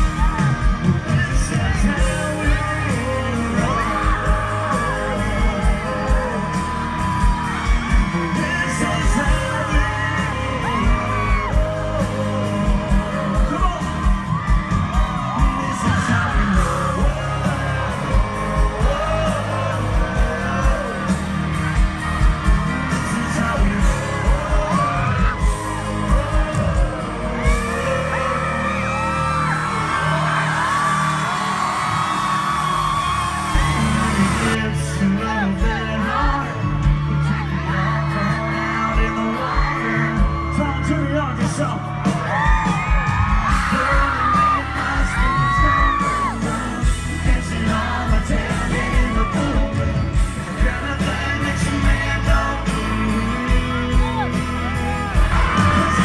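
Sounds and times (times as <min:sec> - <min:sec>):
man singing over a band: 0:00.0 - 0:32.2, 0:33.0 - 0:56.0.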